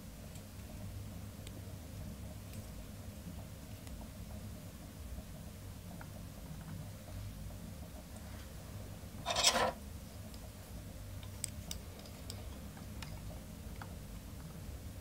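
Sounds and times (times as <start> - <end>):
low steady hum: 0.0 - 15.0
rasping scrape: 9.2 - 9.8.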